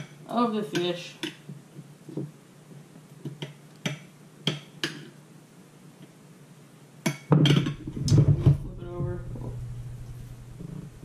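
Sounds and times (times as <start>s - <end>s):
loud low rumbling: 7.7s - 11.0s.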